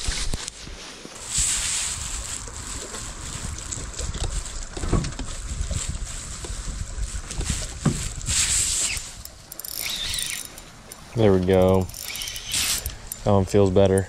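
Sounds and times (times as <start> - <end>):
water lapping at boat: 1.0 - 13.3
wind buffeting microphone: 1.4 - 9.3.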